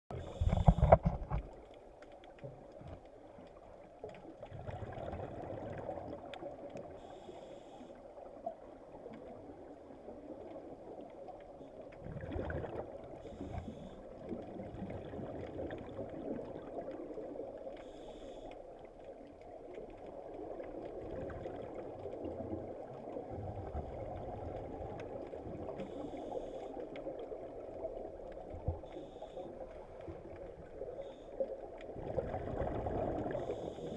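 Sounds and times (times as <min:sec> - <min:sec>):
underwater water rush: 0:00.1 - 0:33.9
divers exhaling bubbles: 0:04.5 - 0:06.3, 0:12.0 - 0:13.4, 0:31.9 - 0:33.9.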